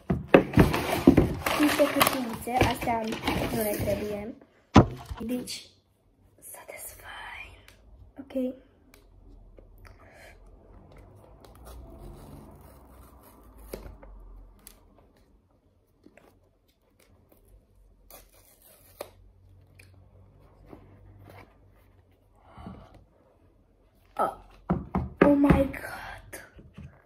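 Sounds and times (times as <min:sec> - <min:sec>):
paper tearing and rubbing: 0:11.6 - 0:13.9, 0:18.0 - 0:19.2.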